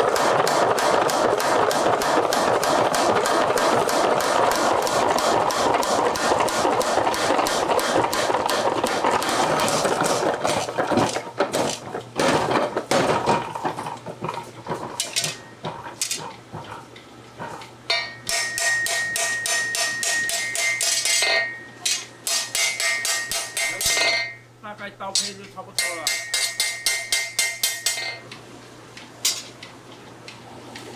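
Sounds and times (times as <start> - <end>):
power hammer pounding steel: 0.0 - 13.1, 17.9 - 24.4, 25.8 - 28.1
hand hammer ringing on anvil: 17.9 - 24.4, 25.8 - 28.2.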